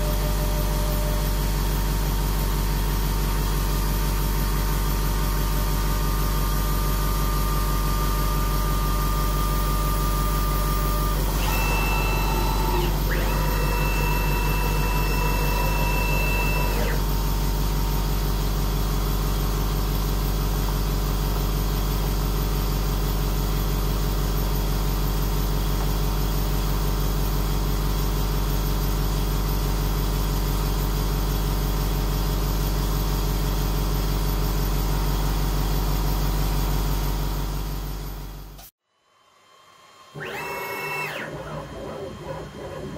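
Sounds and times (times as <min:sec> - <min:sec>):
machine hum: 0:00.0 - 0:20.5, 0:34.1 - 0:42.9
high whining tones: 0:10.3 - 0:17.3.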